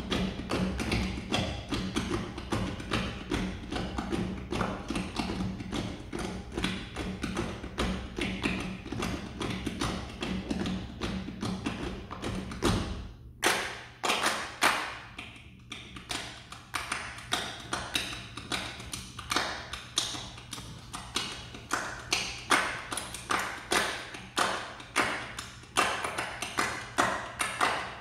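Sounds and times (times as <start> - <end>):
hand claps and slaps: 0.0 - 28.0.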